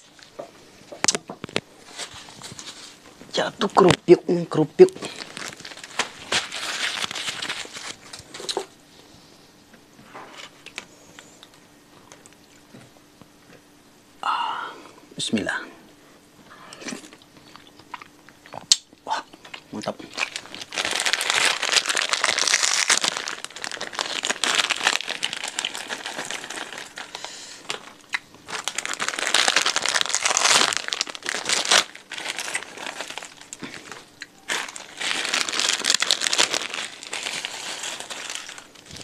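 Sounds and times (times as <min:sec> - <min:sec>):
crackers rustling: 0:01.0 - 0:04.0, 0:04.9 - 0:08.7, 0:19.5 - 0:39.0
plastic bags crinkling: 0:01.0 - 0:04.1, 0:04.9 - 0:08.7, 0:19.5 - 0:39.0.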